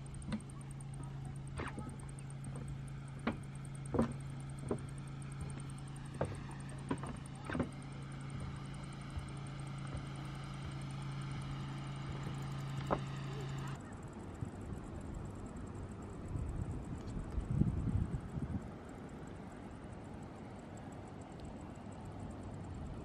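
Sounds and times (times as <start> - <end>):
steady low hum: 0.0 - 23.0
footsteps on wooden planks: 2.6 - 10.8.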